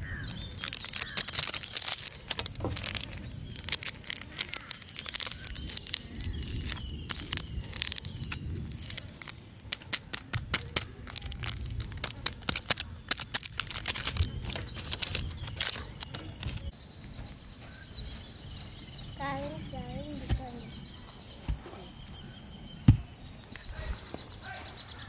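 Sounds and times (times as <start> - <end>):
foil sachets crinkling: 0.0 - 16.7
faint birds chirping: 0.0 - 25.0.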